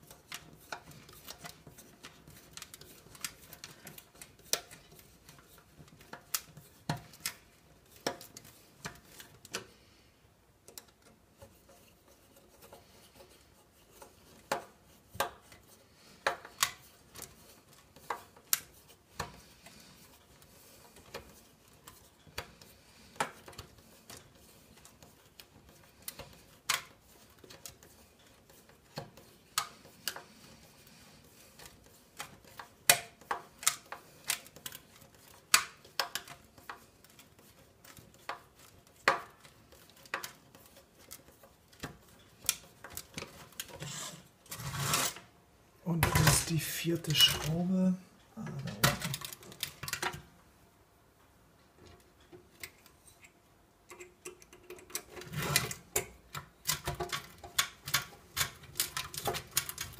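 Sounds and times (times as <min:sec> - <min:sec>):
screwdriver clicking on metal screws: 0:53.9 - 0:59.9.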